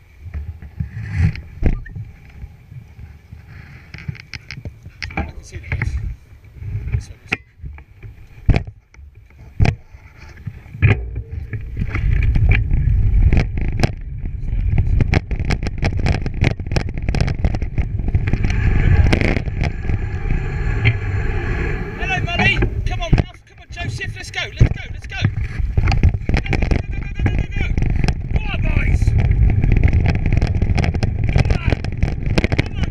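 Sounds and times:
wind rumbling on microphone: 0.0s - 32.9s
bike rattling over bumps: 7.0s - 32.9s.

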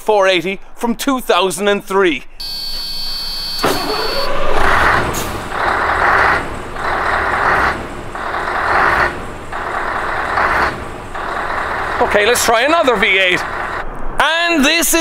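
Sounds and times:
electronic warning tone: 2.4s - 5.0s
diesel truck engine running: 2.4s - 14.0s.

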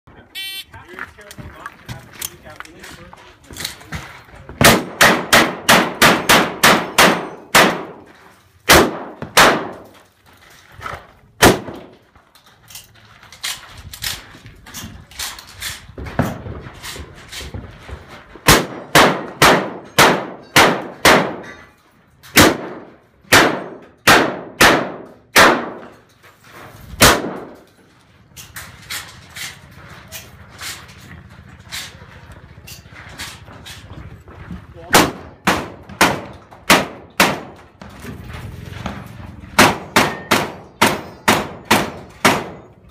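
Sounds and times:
shotgun blasts ringing: 4.6s - 8.0s, 8.7s - 9.8s, 22.4s - 25.8s.

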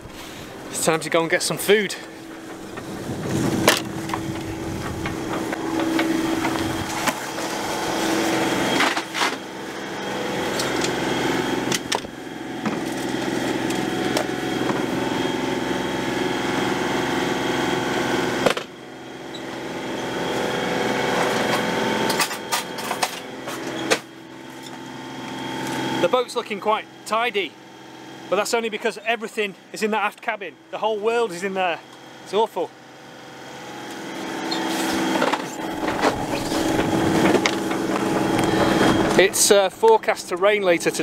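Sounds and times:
boat engine running: 0.0s - 29.8s, 30.4s - 41.0s
knocks and clatters: 2.3s - 7.2s.

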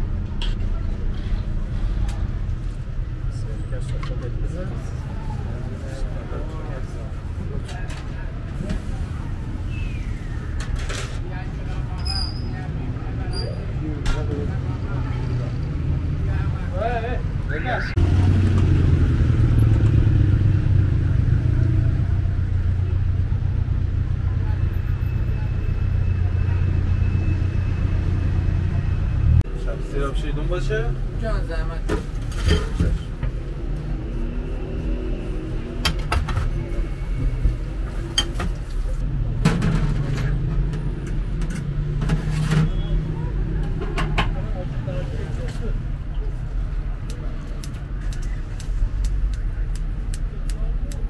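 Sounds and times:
street traffic rumble: 0.0s - 51.0s
cars driving past: 12.6s - 50.7s.

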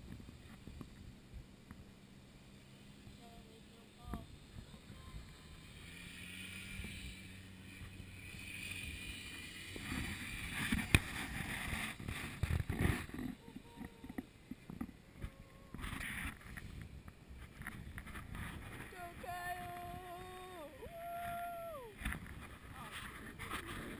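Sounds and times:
atv engine running: 0.0s - 23.9s
wind on microphone: 6.6s - 23.9s.

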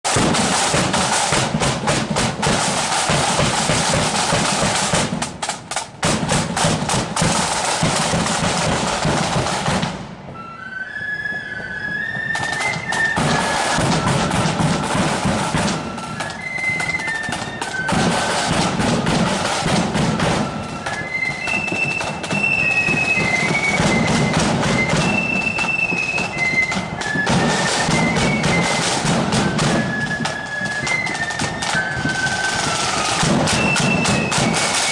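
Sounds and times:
snare and bass drums: 0.0s - 10.4s, 12.3s - 34.9s
flutes playing a tune: 0.1s - 34.9s.

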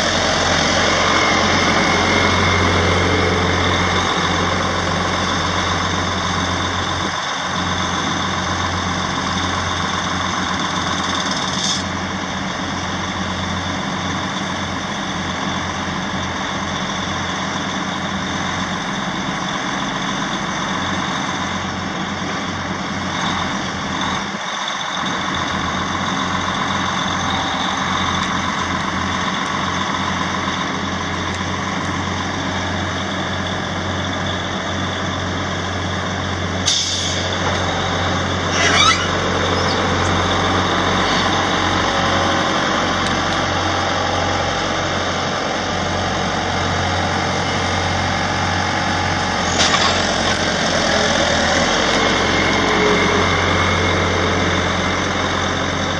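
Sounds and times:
truck engine under load: 0.0s - 55.9s.

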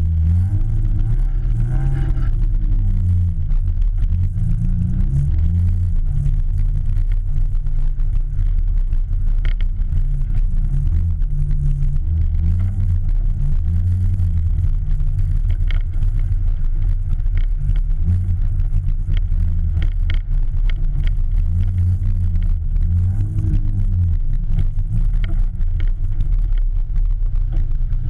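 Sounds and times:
car engine running at low speed: 0.0s - 28.0s.

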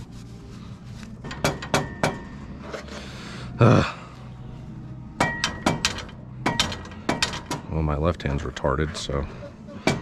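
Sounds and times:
steady low hum: 0.0s - 10.0s
metal parts and tools clinking: 1.2s - 3.0s, 5.2s - 7.7s.

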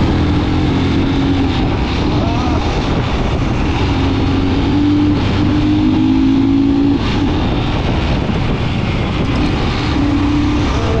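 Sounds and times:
motorcycle engine running: 0.0s - 5.6s
road and wind noise: 0.0s - 11.0s.

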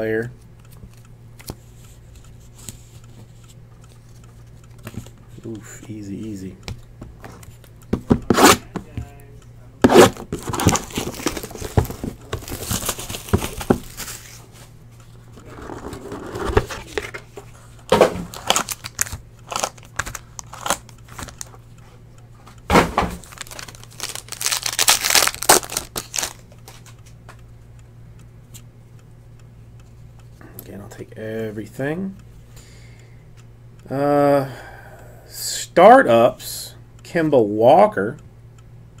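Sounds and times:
cardboard knocks: 7.9s - 8.4s, 11.7s - 12.4s
foil pack tearing open: 9.9s - 14.2s, 18.3s - 21.5s, 23.2s - 26.4s
shrink wrap crinkling and tearing: 10.0s - 14.4s, 18.3s - 21.5s, 23.2s - 26.8s
foil packs rustling: 10.0s - 14.5s, 18.2s - 21.5s, 23.2s - 26.4s.

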